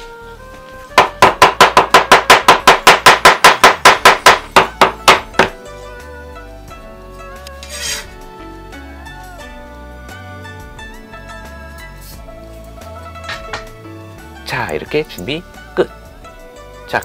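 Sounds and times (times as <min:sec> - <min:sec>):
soft background music: 0:00.0 - 0:17.0
cleaver chopping on wooden board: 0:01.0 - 0:05.6
blade scraping across board: 0:07.6 - 0:08.2.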